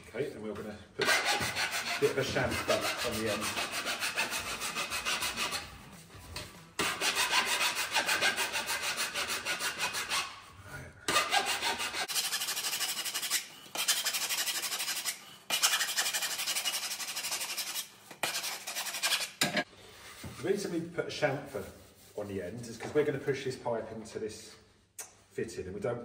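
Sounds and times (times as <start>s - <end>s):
file rasping on plastic pipe: 1.0s - 5.9s, 6.8s - 10.4s, 11.1s - 19.5s.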